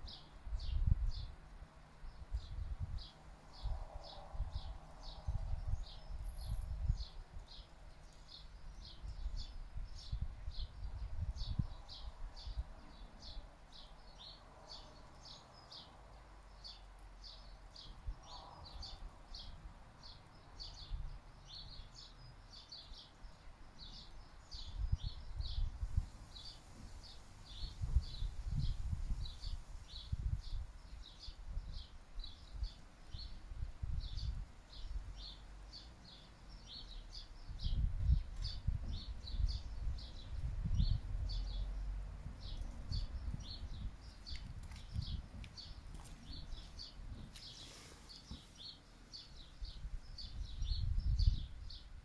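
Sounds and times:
wind buffeting microphone: 0:00.1 - 0:01.4, 0:02.1 - 0:07.6, 0:08.6 - 0:13.8, 0:23.9 - 0:47.6, 0:48.2 - 0:52.0.

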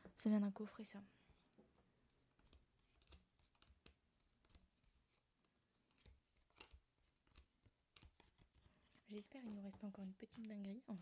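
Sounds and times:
faint clicks of cards handled: 0:01.3 - 0:11.0.

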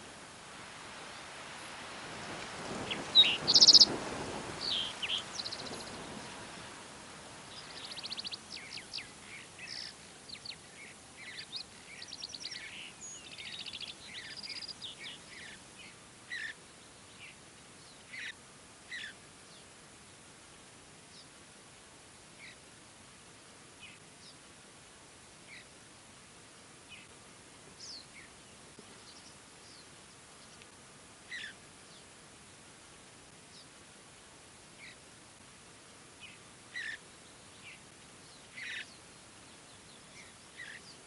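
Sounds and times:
songbirds calling and singing: 0:01.0 - 0:06.7, 0:07.4 - 0:20.2, 0:22.4 - 0:22.6, 0:25.4 - 0:27.2, 0:27.8 - 0:33.8, 0:34.8 - 0:35.0, 0:36.2 - 0:41.0.

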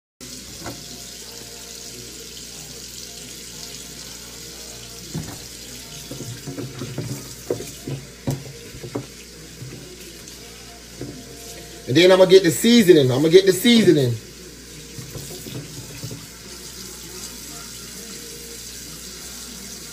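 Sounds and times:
tap water running into a sink: 0:00.2 - 0:19.9
meat knocking against a sink: 0:05.1 - 0:10.0, 0:15.0 - 0:16.3.

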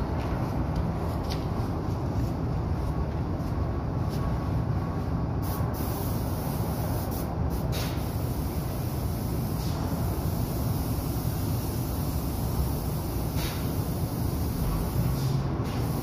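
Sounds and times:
steady low rumble: 0:00.0 - 0:07.6
spray gun hissing: 0:05.4 - 0:16.0.

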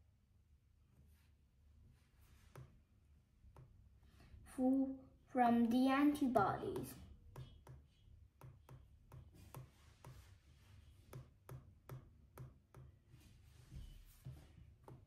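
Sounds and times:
stylus tapping on glass screen: 0:06.4 - 0:10.2.

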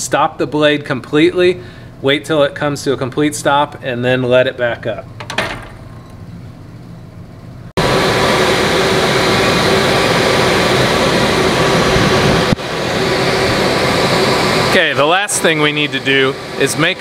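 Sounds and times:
dust collector rushing air: 0:07.8 - 0:17.0.

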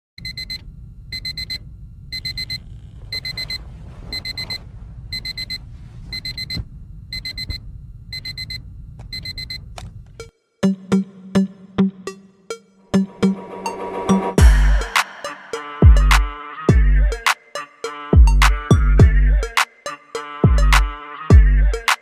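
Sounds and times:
low steady hum: 0:00.2 - 0:10.2.

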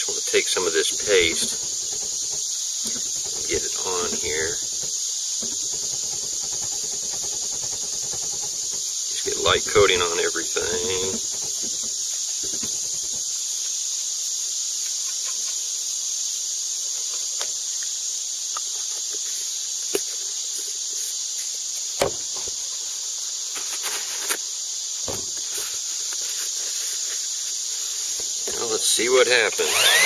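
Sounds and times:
insect chorus hissing: 0:00.0 - 0:30.0
knocks: 0:00.9 - 0:13.2.

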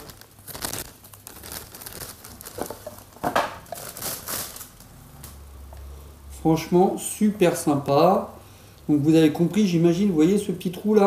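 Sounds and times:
plastic bag crinkling: 0:00.0 - 0:05.3.

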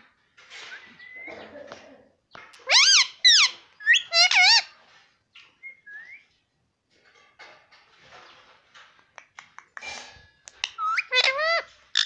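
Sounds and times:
faint bird chirps: 0:00.6 - 0:02.1.

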